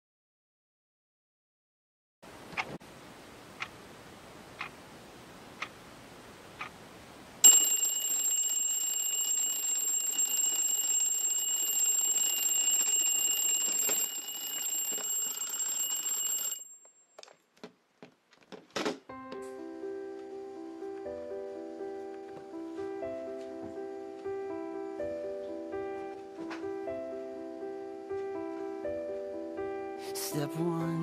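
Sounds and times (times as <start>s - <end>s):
alarm clock ticking: 7.4s - 16.8s
alarm bell ringing: 7.4s - 17.1s.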